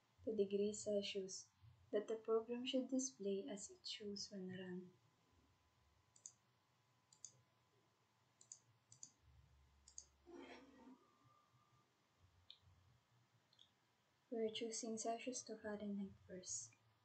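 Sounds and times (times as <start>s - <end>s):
computer mouse clicks: 6.1s - 6.4s, 7.1s - 7.4s, 8.4s - 9.2s, 9.8s - 10.2s.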